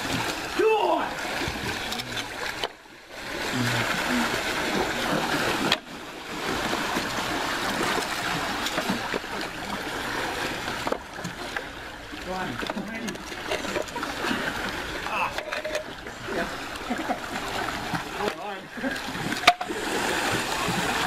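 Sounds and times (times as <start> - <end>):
people wading through pool water: 0.0 - 21.0.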